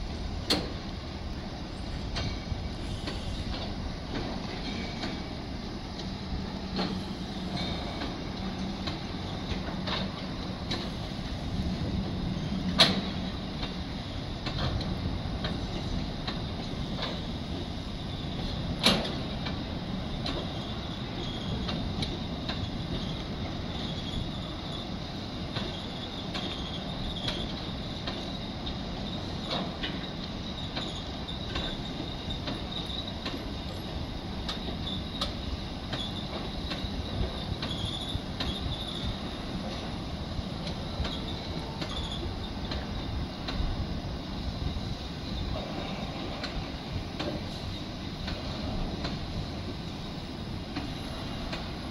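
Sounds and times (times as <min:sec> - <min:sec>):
steel wheels rumbling on rails: 0:00.0 - 0:51.9
clicks over rail joints: 0:00.5 - 0:00.8, 0:06.7 - 0:11.0, 0:12.6 - 0:13.8, 0:14.4 - 0:17.3, 0:18.4 - 0:23.6, 0:25.5 - 0:33.8, 0:34.4 - 0:40.0, 0:40.6 - 0:43.7, 0:45.5 - 0:49.4.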